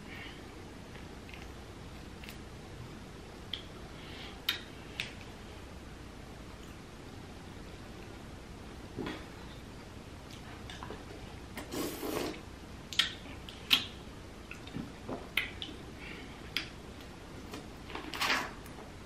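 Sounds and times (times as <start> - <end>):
mouth clicks and lip smacks: 4.4 - 5.2, 11.6 - 15.8
wet sucking sounds: 11.6 - 12.5.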